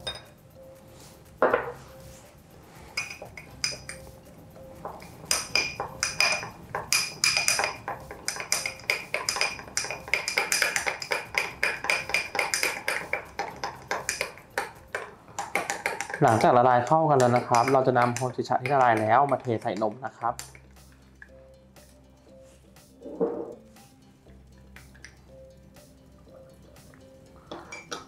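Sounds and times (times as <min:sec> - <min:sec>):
spoon clinking against glass: 0:00.0 - 0:00.4, 0:03.0 - 0:04.1, 0:04.9 - 0:14.7, 0:17.2 - 0:19.5, 0:27.5 - 0:28.0.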